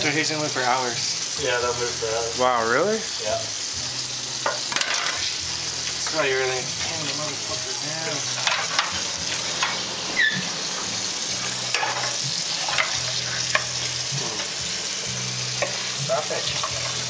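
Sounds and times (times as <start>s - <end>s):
hot oil sizzling in a pan: 0.0s - 17.0s.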